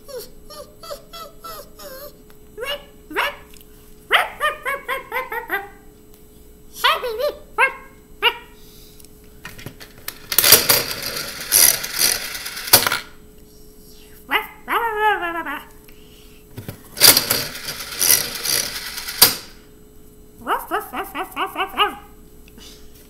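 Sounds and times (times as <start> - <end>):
puppy-like whine: 0.0 - 3.5
slot machine lever pull: 10.1 - 13.0, 17.0 - 19.5
toy slot machine reels whirring: 10.1 - 13.1, 17.0 - 19.6.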